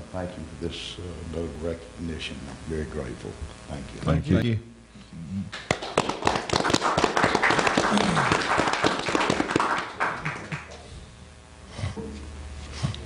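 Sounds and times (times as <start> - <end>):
small audience clapping: 5.5 - 10.9.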